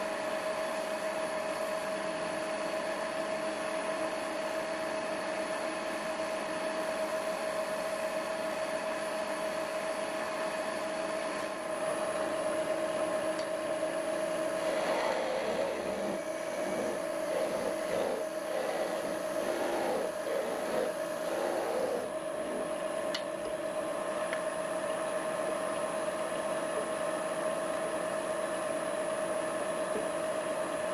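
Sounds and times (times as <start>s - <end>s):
wood lathe motor whine: 13.8s - 22.7s
chisel scraping spinning wood: 14.5s - 22.7s.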